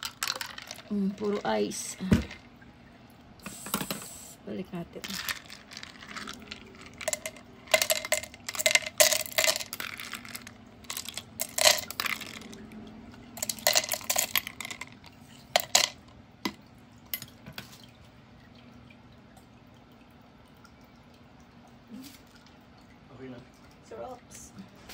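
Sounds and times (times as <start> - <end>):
ice cubes clinking in cups: 0.0 - 2.4, 5.0 - 12.7, 13.4 - 16.1.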